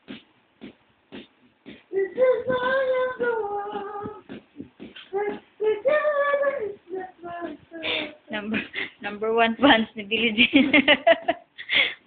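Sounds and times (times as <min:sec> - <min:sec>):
child singing: 0:01.9 - 0:04.4, 0:05.1 - 0:08.7.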